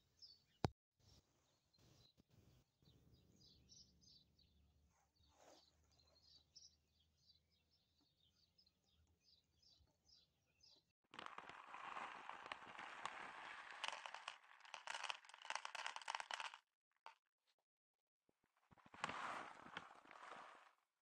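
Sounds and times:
faint birds chirping: 0:00.0 - 0:10.9.

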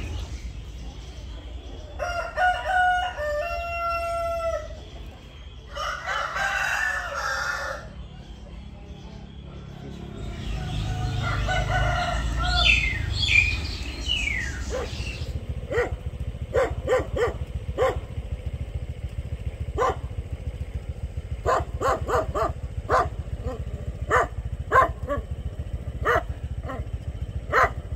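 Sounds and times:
rooster crowing: 0:02.0 - 0:04.8, 0:05.7 - 0:08.0, 0:10.5 - 0:13.4
small dog yapping: 0:14.6 - 0:15.1.

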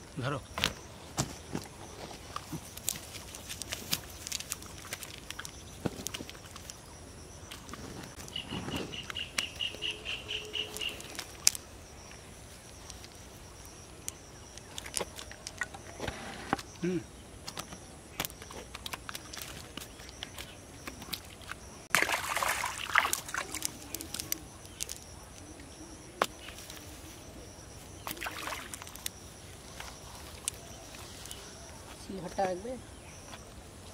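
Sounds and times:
scuffling and splashing: 0:00.6 - 0:06.8, 0:17.5 - 0:25.0, 0:28.0 - 0:32.6
wet net and fish rustling: 0:00.6 - 0:13.7, 0:17.5 - 0:25.6, 0:26.2 - 0:32.2
bird trilling: 0:08.2 - 0:11.2.

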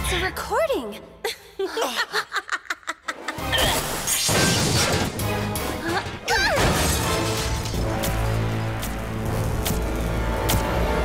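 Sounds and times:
dramatic music: 0:03.1 - 0:11.0
loud crash and clatter: 0:06.1 - 0:08.6.

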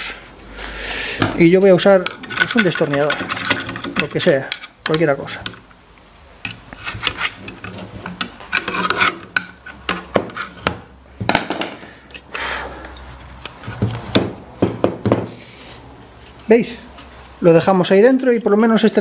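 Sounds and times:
metal on metal clicks: 0:01.3 - 0:05.7
screwdriver scraping packing: 0:02.1 - 0:04.8, 0:06.5 - 0:10.7.

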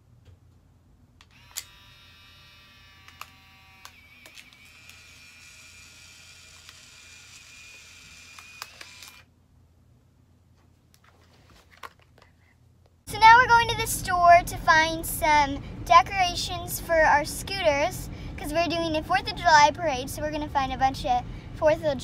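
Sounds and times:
camera motor whirring: 0:01.3 - 0:09.3
camera shutter click: 0:07.4 - 0:09.2.

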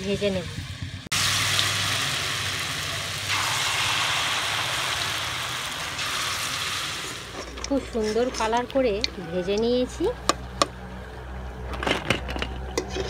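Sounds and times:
food sizzling in hot oil: 0:01.1 - 0:07.5.

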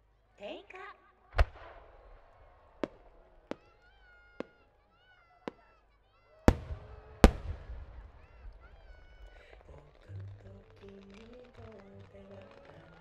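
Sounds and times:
distant firework cracks: 0:01.3 - 0:13.0
loud firework booms with echo: 0:01.4 - 0:04.6, 0:06.5 - 0:09.7.

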